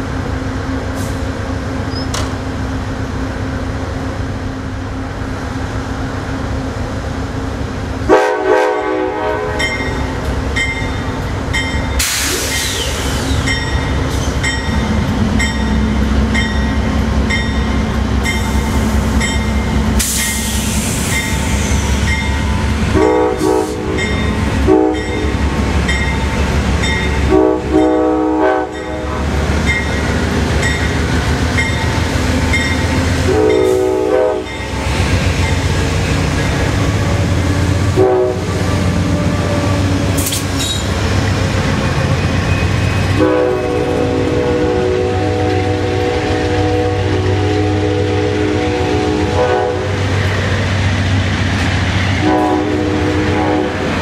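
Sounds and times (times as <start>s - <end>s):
train horn blasts: 8.0s - 9.9s, 22.9s - 25.4s, 27.2s - 29.4s, 33.2s - 34.6s, 37.8s - 39.8s, 43.1s - 50.2s, 52.1s - 54.0s
crossing bell ringing: 9.6s - 12.0s, 13.4s - 19.8s, 21.1s - 34.8s.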